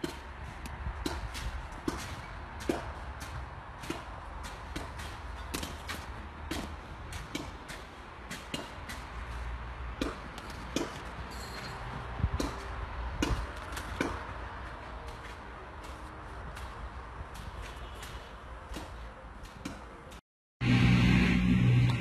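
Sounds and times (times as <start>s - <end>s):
steady low rumble: 20.6s - 22.0s.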